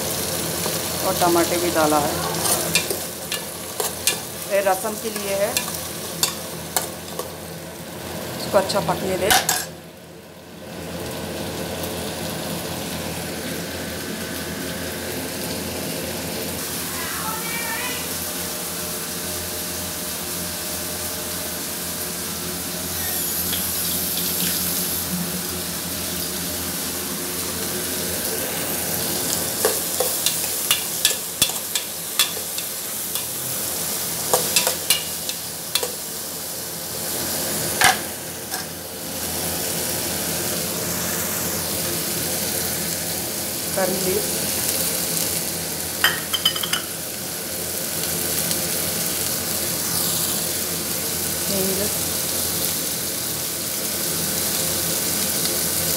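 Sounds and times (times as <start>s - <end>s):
food sizzling in a pot: 0.0s - 55.9s
spoon clinking and scraping pot: 29.6s - 33.3s, 34.3s - 36.0s, 46.0s - 46.9s.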